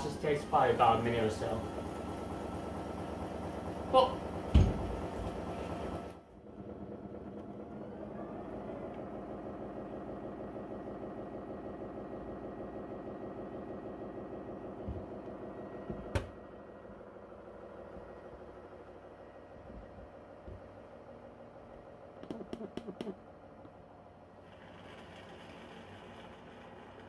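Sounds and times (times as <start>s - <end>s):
mopping pads spinning and scraping: 24.3s - 27.0s.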